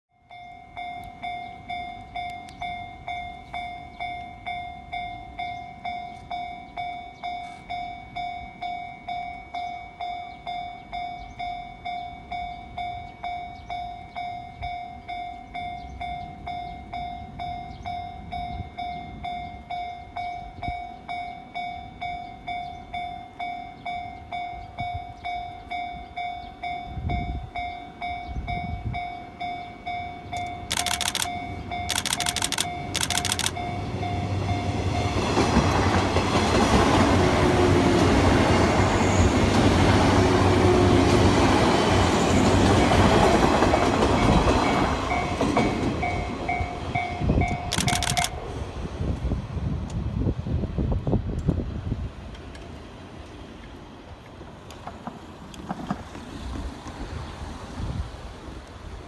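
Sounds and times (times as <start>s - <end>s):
level-crossing bell ringing: 0.1s - 35.4s
electric train passing: 0.2s - 59.0s.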